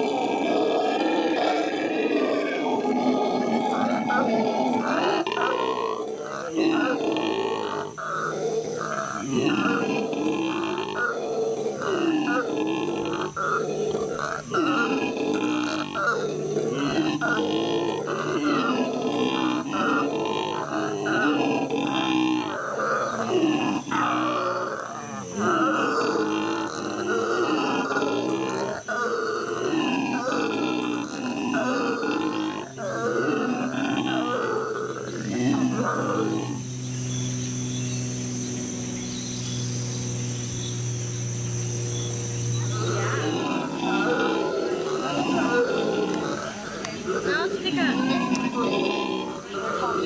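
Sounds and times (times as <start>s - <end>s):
howler monkeys howling: 0.0s - 50.0s.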